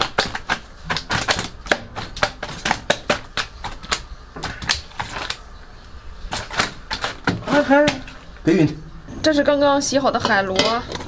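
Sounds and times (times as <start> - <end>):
fish slapping on tiles: 0.0 - 5.5, 6.3 - 8.4.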